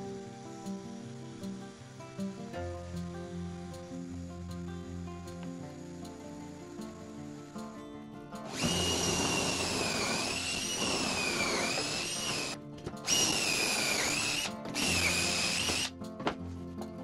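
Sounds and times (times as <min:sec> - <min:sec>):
cordless drill whining: 0:08.5 - 0:15.9.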